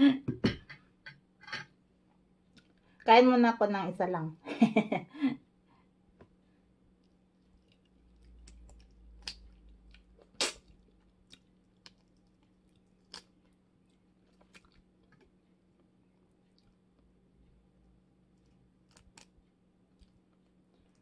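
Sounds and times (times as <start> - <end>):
chewing: 6.9 - 17.1, 18.3 - 21.0.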